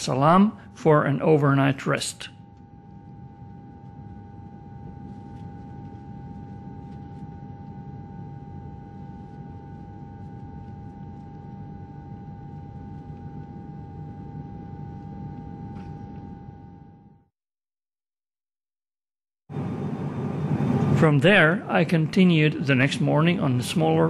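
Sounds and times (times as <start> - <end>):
constant high whine: 0.0 - 17.3, 19.5 - 24.0
low cabin rumble: 2.4 - 17.2.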